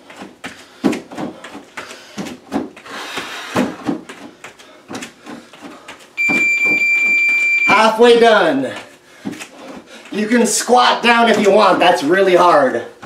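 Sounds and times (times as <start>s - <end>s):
bare feet thumping on plastic step: 0.0s - 7.8s, 8.7s - 10.2s
high electronic beep: 6.2s - 7.9s.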